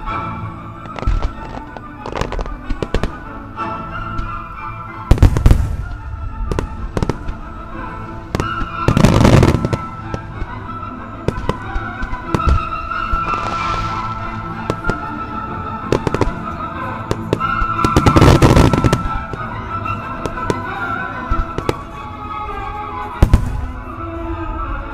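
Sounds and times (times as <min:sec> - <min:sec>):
music: 0:00.0 - 0:24.9.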